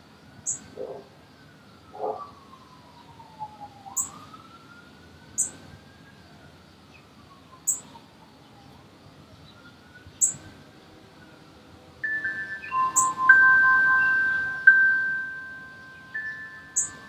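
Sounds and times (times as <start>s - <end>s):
high bird chirps: 0.4s - 0.7s, 3.9s - 4.2s, 5.4s - 5.6s, 7.6s - 8.0s, 10.1s - 10.4s, 12.0s - 17.0s
emergency vehicle siren wailing: 0.8s - 10.1s, 12.0s - 17.0s.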